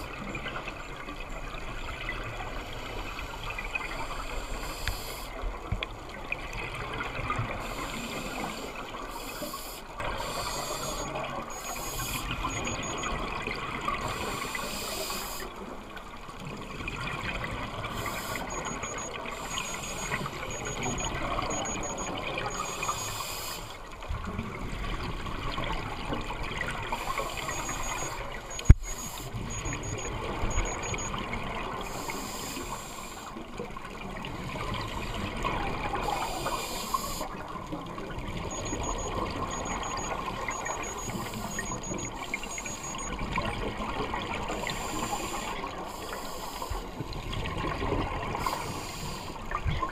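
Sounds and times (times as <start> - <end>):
scuba regulator bubbles underwater: 0.0 - 49.9
faint high-pitched beeps: 7.6 - 15.5, 17.8 - 23.7, 26.9 - 33.2, 38.4 - 43.8, 44.5 - 46.8.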